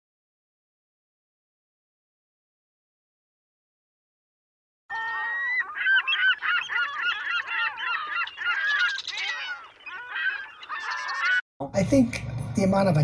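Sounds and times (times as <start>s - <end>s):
flock of birds honking: 4.9s - 11.4s.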